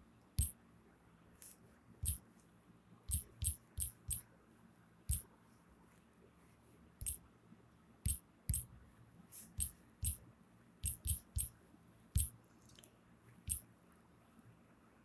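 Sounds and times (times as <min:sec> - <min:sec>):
touchscreen key-tap clicks: 0:08.1 - 0:08.7.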